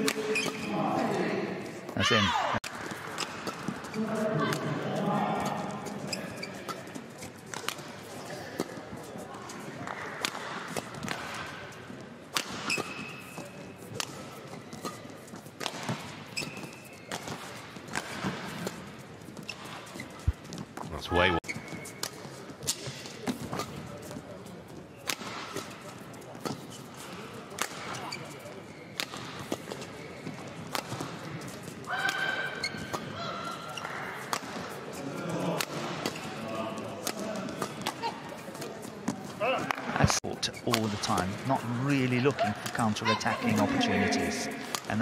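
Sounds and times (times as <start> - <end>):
shoes squeaking on court: 0.0 - 35.2
shoe squeaks on court: 0.1 - 0.7, 5.9 - 8.6, 12.6 - 13.8, 16.3 - 17.5, 21.4 - 24.1, 27.8 - 30.4, 32.2 - 34.0
racket hitting shuttlecock: 9.8 - 11.6, 12.3 - 15.0, 15.6 - 18.8, 25.0 - 25.8, 30.6 - 31.2, 34.2 - 34.7, 35.5 - 36.3, 37.0 - 38.7, 44.6 - 44.9.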